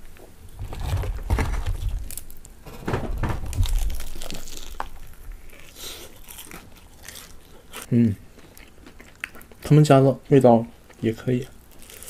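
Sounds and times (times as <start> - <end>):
handling bumps: 0.4 - 5.6
fried chicken crust crackling: 11.0 - 12.0.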